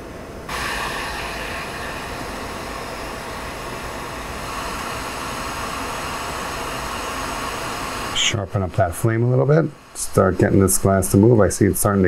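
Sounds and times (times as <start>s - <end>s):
torch flame hissing: 0.5s - 12.0s.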